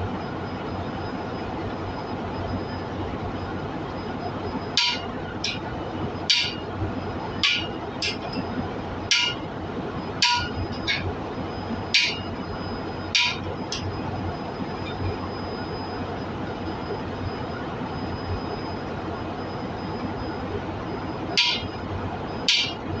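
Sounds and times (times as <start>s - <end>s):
hammer striking metal: 4.8s - 5.6s, 6.3s - 6.6s, 7.4s - 8.4s, 9.1s - 9.4s, 10.2s - 11.1s, 12.0s - 12.3s, 13.2s - 13.9s, 21.4s - 21.7s, 22.5s - 22.8s.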